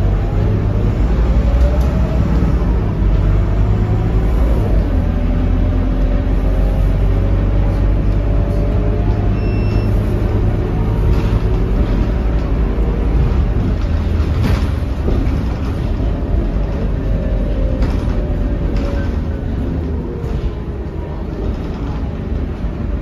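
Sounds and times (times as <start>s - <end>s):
bus engine drone: 0.0s - 23.0s
short beep: 9.3s - 10.1s.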